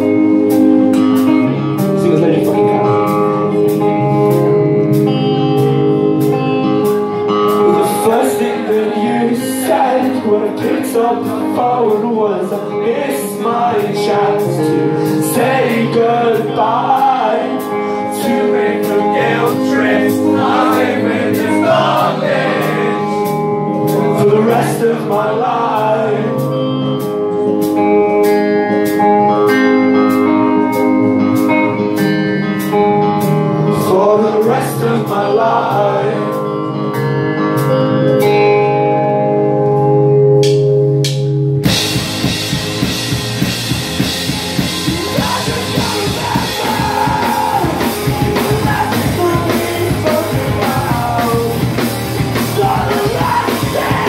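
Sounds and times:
rock band playing: 0.0s - 54.0s
man singing: 7.4s - 27.0s, 33.7s - 36.9s, 44.7s - 54.0s.

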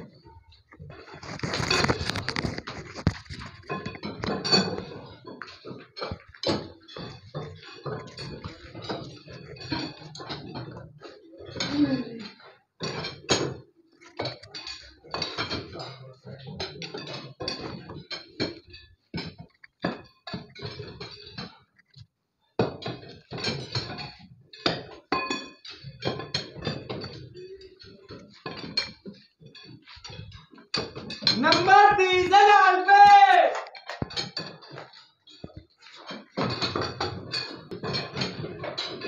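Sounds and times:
metal jacks and bars clanking: 0.0s - 22.0s, 22.8s - 39.0s
person crying out: 31.4s - 33.6s.

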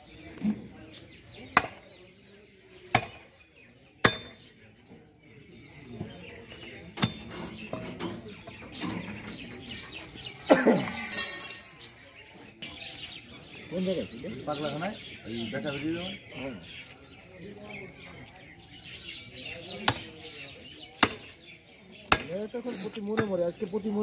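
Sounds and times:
cleaver chopping on wooden block: 1.5s - 1.9s, 2.9s - 3.2s, 4.0s - 4.4s, 19.8s - 20.2s, 21.0s - 21.3s, 22.1s - 22.4s.

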